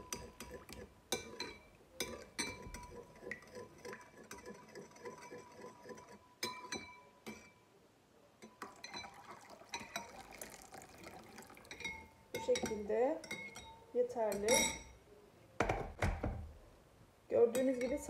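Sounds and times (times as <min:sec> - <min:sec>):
metal spoon clinking in bowl: 0:00.0 - 0:07.6, 0:08.4 - 0:10.2, 0:11.6 - 0:15.0, 0:17.5 - 0:18.0
water pouring from jug: 0:08.6 - 0:12.1.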